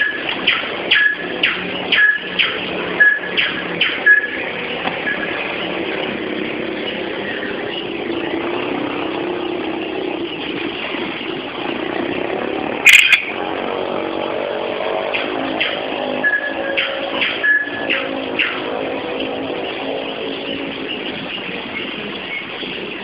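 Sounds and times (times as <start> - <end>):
engine drone: 0.0 - 23.0
sharp loud crackle: 12.8 - 13.4.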